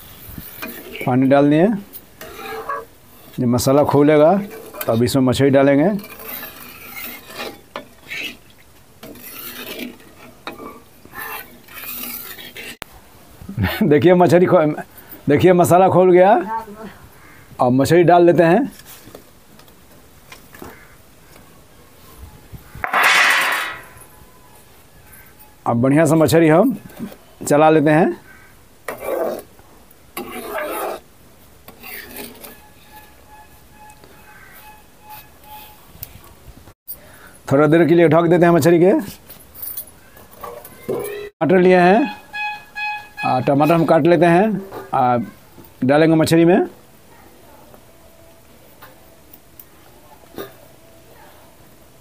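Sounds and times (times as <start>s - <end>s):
spatula scraping through gravy: 0.0s - 1.1s, 2.2s - 5.1s, 5.7s - 12.8s, 30.2s - 31.0s, 31.7s - 35.8s.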